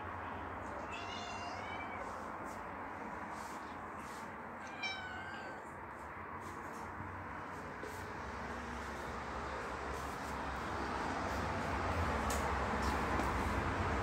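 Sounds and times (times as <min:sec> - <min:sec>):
cat meowing: 0:00.7 - 0:02.1, 0:04.6 - 0:05.7.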